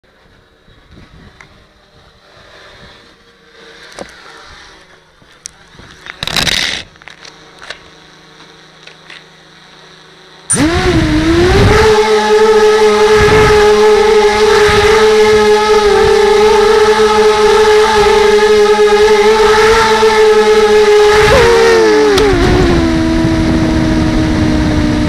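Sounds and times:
high whine of drone motors: 0:00.1 - 0:25.0
loud rush of noise: 0:19.3 - 0:25.0
wind buffeting microphone: 0:21.3 - 0:25.0.

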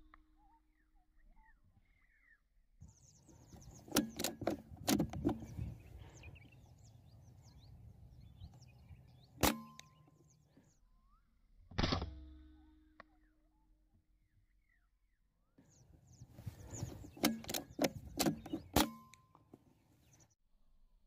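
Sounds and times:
small birds chirping: 0:00.4 - 0:11.3, 0:14.3 - 0:20.4
air rifle shot crack: 0:09.4 - 0:10.0
clicks and knocks: 0:17.2 - 0:19.2.

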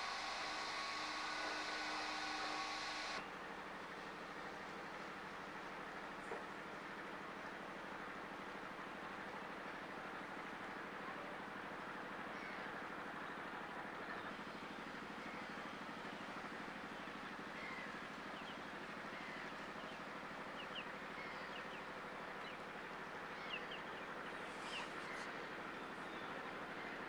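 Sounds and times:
low hum: 0:00.0 - 0:03.2.

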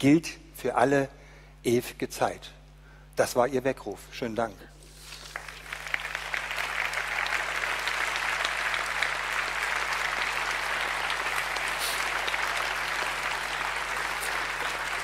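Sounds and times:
large audience applauding: 0:05.2 - 0:15.0.

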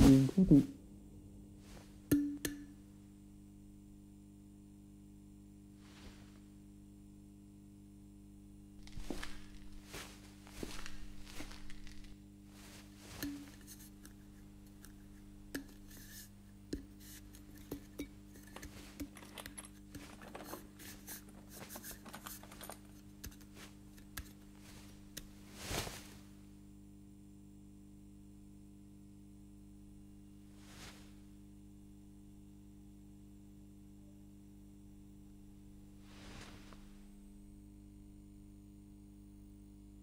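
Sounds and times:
steady low hum: 0:00.0 - 0:40.0
suit fabric rustling: 0:08.8 - 0:14.4, 0:20.0 - 0:26.4, 0:30.6 - 0:31.2, 0:36.0 - 0:37.0.

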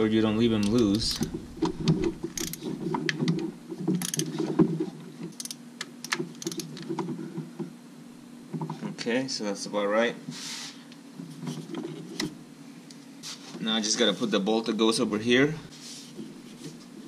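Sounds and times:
hand ratchet clicking: 0:02.0 - 0:02.6, 0:04.0 - 0:04.3, 0:05.3 - 0:06.8.

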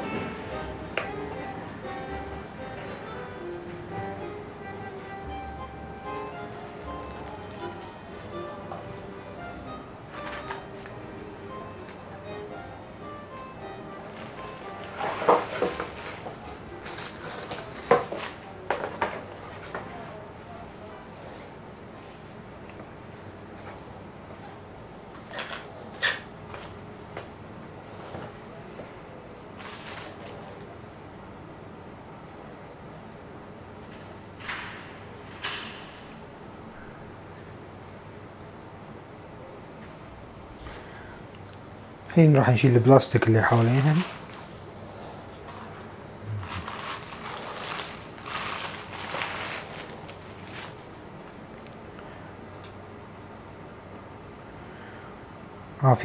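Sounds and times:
plastic crinkles: 0:06.0 - 0:09.0, 0:10.1 - 0:12.1, 0:14.0 - 0:20.2, 0:29.5 - 0:30.7, 0:43.1 - 0:51.0
paper and plastic rustling: 0:06.0 - 0:09.1, 0:10.1 - 0:12.1, 0:14.0 - 0:23.8, 0:29.5 - 0:30.7, 0:43.1 - 0:44.8, 0:45.4 - 0:51.0.

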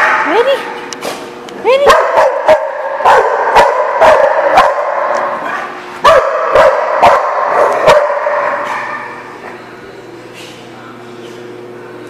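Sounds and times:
dog barking loudly: 0:01.8 - 0:09.0.

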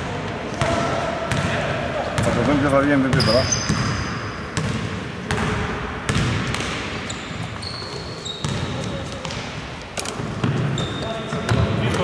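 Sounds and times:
sneaker squeaks: 0:02.1 - 0:05.5, 0:06.1 - 0:12.0
basketball bouncing on wooden floor: 0:04.6 - 0:06.8, 0:08.4 - 0:09.4.

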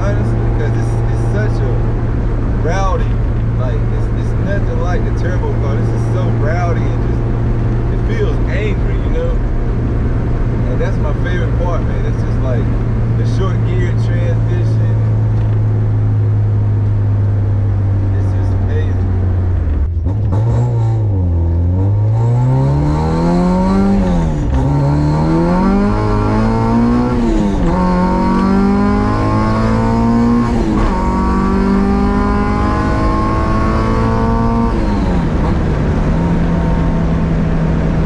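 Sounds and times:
car engine accelerating through gears: 0:00.0 - 0:38.0.

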